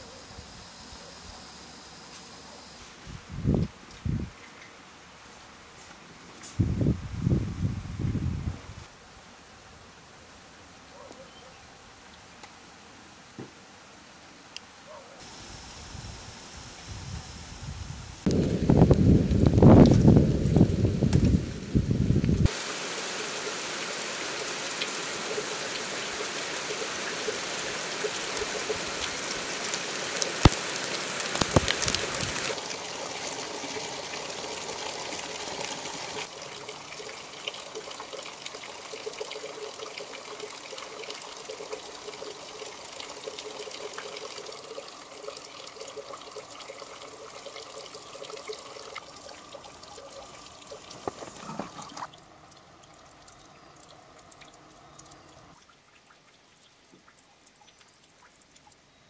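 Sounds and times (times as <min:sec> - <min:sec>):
heavy rain pouring: 0:18.2 - 0:36.8.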